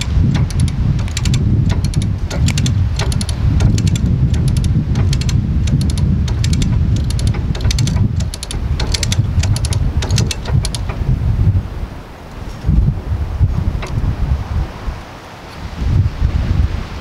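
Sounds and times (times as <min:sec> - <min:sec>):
winch ratchet clicking: 0:00.0 - 0:11.1
wind rumble on microphone: 0:00.0 - 0:17.0.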